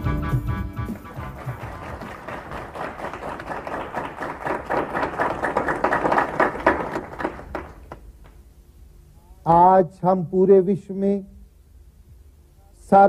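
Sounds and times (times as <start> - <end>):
audience applauding: 0.9 - 8.1.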